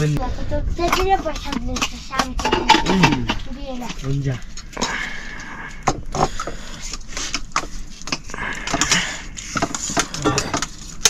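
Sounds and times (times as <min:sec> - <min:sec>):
pots and utensils clattering: 0:00.9 - 0:03.5, 0:07.5 - 0:11.0.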